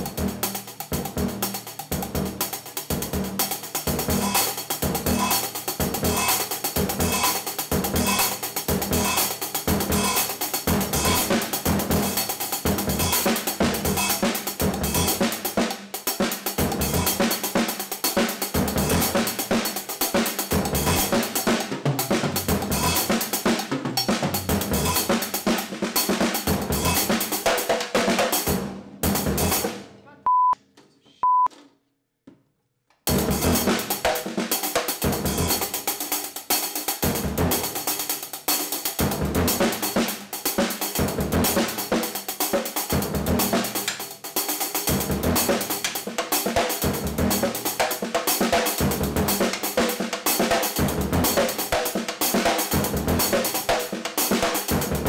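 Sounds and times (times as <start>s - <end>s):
drum kit playing a groove: 0.0s - 30.6s, 33.1s - 55.0s
high censor bleeps: 30.2s - 30.6s, 31.2s - 31.5s.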